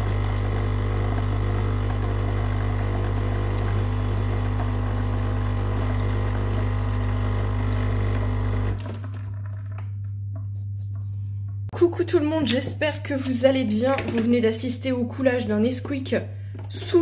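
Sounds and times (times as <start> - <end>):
coffee machine pump buzzing: 0.0 - 9.8
drink streaming into mug: 0.0 - 9.8.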